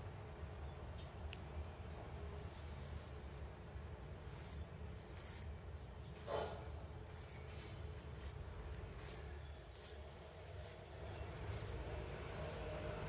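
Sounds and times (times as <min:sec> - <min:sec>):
stick scraping against plant: 0:04.2 - 0:13.0.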